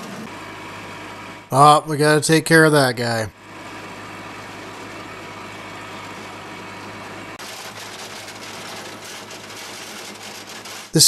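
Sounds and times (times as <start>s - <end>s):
diesel tractor engine running: 0.0s - 11.0s.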